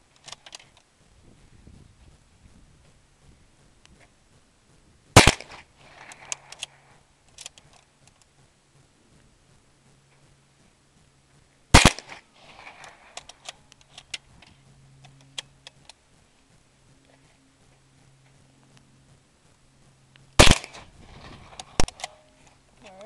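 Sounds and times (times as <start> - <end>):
rifle shots with echo: 5.2 - 6.6, 11.7 - 13.1, 20.4 - 22.2.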